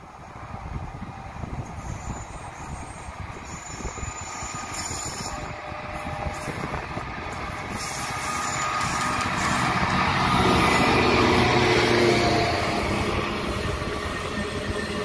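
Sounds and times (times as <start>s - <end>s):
diesel locomotive engine: 0.0s - 15.0s
wheels rumbling on rails: 0.0s - 15.0s.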